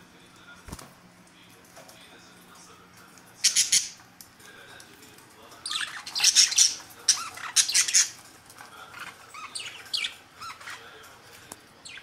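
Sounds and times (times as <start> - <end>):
budgerigars squawking and chirping: 3.4 - 4.0, 5.6 - 8.2, 9.0 - 10.9.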